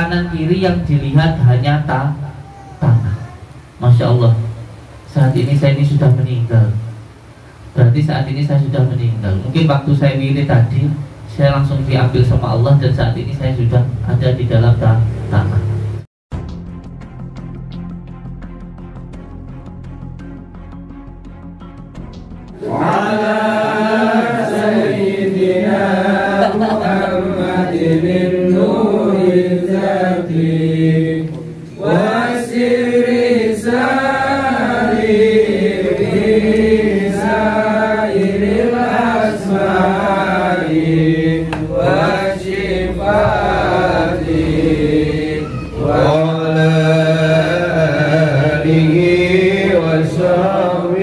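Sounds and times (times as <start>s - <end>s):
devotional chant singing: 22.5s - 51.0s.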